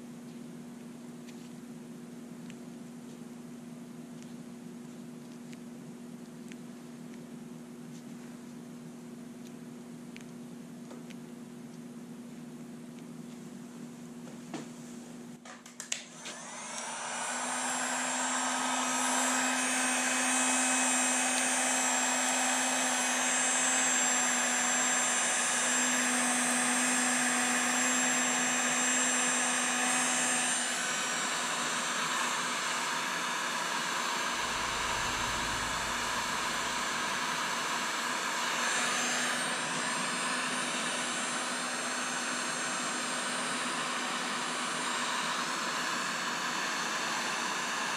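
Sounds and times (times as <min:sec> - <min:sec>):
heat gun fan blowing: 0:15.9 - 0:47.9.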